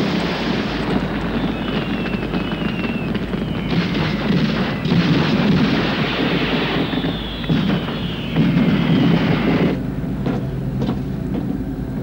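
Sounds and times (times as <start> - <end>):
gunfire and blasts: 0.0 - 9.8
faint falling whistle: 0.9 - 9.8.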